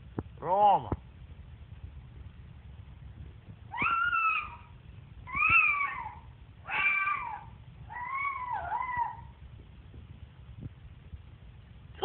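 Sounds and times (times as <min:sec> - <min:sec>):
cockatoo calling: 0:03.7 - 0:04.7, 0:05.3 - 0:09.3.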